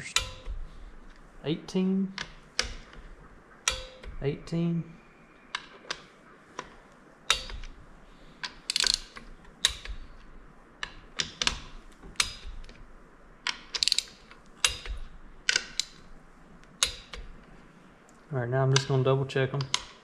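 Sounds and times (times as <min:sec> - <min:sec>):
torque wrench clicking: 0:07.3 - 0:07.7, 0:08.4 - 0:12.8, 0:13.4 - 0:16.1, 0:16.8 - 0:17.3.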